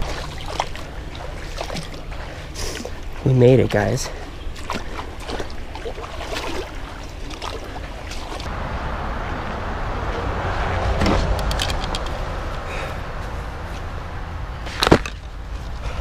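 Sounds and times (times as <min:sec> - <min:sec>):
creek water running: 0:00.0 - 0:11.6
deep rumble: 0:08.4 - 0:16.0.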